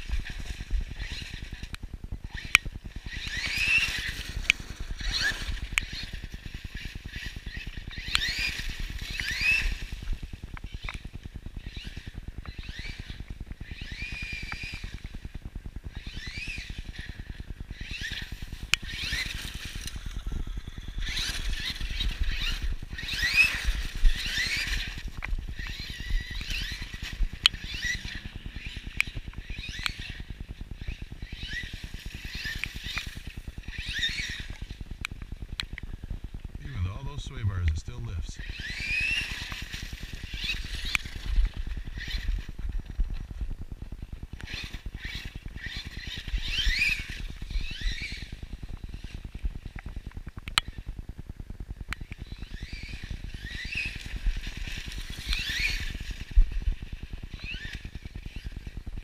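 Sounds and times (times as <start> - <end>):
electric motor whining: 0.0 - 15.3, 15.9 - 34.8
steady low rumble: 34.8 - 44.4
sharp clicks: 36.6 - 38.4.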